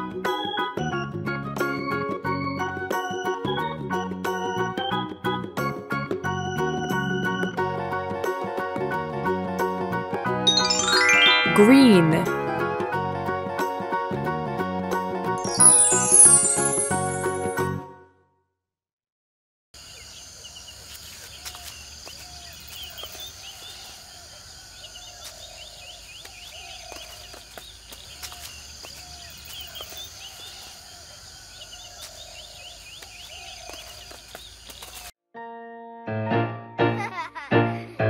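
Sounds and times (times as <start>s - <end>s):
birds chirping and warbling: 19.9s - 35.1s.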